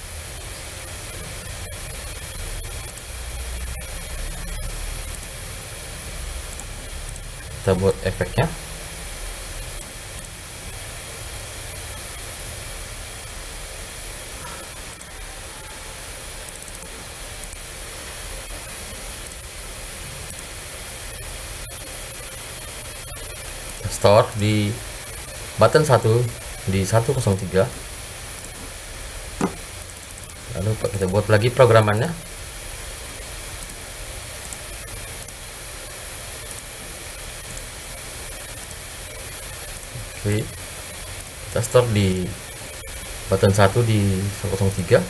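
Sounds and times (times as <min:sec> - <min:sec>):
background hiss: 0:00.0 - 0:45.0
computer mouse clicks: 0:02.8 - 0:03.1, 0:06.5 - 0:07.3, 0:09.8 - 0:10.4, 0:16.4 - 0:17.6, 0:20.3 - 0:20.5, 0:28.4 - 0:28.7, 0:29.4 - 0:30.4, 0:33.6 - 0:33.8, 0:34.4 - 0:34.6, 0:36.5 - 0:36.7, 0:37.5 - 0:37.7, 0:38.6 - 0:38.8.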